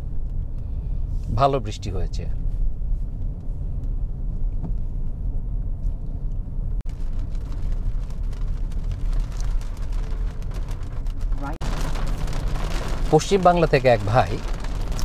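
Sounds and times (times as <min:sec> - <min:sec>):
car engine and tyres rumbling: 0:00.0 - 0:15.0
tyre hiss on wet road: 0:11.6 - 0:15.0.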